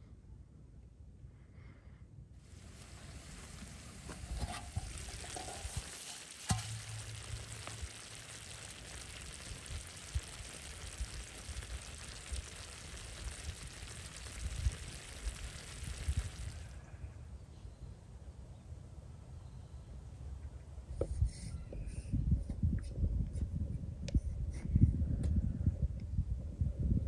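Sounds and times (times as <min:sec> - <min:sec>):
pot simmering and sizzling: 0:02.4 - 0:16.9
wood fire crackles: 0:02.4 - 0:16.9.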